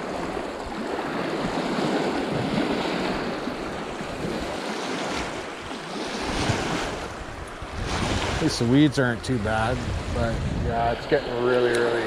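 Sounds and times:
small waves lapping on pebbles: 0:00.0 - 0:08.8
wind buffeting microphone: 0:00.0 - 0:12.0.

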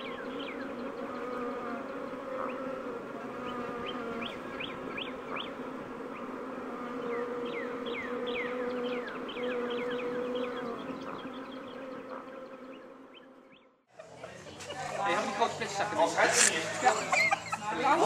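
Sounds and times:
bees buzzing: 0:00.0 - 0:18.0.

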